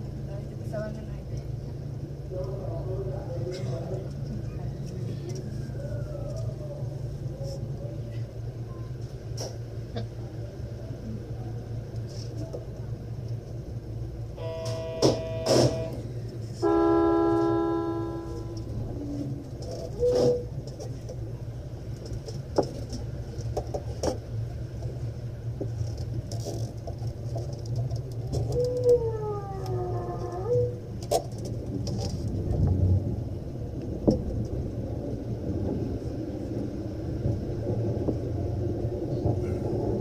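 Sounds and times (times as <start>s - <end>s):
train cab low hum: 0.0s - 40.0s
train motor whine: 14.3s - 20.7s.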